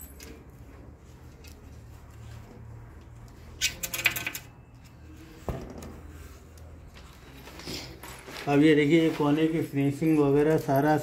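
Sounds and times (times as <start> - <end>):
light metallic clinks and jingles: 0.0 - 0.6, 9.7 - 11.0.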